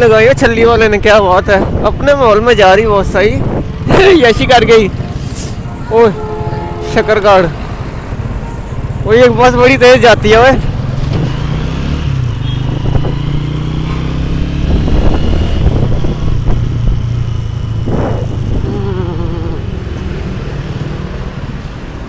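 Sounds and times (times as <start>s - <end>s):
road and wind noise: 0.0s - 22.0s
motorcycle engine running: 10.4s - 19.8s.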